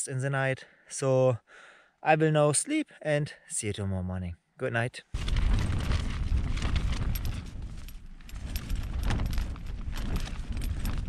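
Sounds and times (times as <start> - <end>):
tent fabric flapping: 5.2 - 11.0
wind gusting: 5.2 - 11.0.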